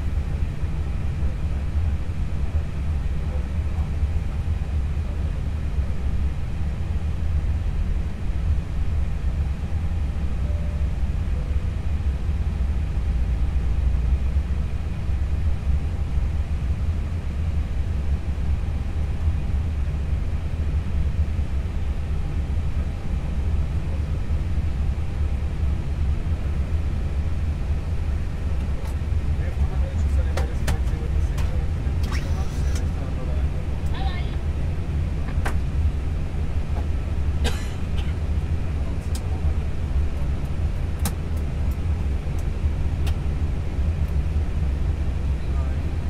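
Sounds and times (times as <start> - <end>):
low rumble and hum: 0.0 - 46.0
faint steady tones: 9.6 - 13.6.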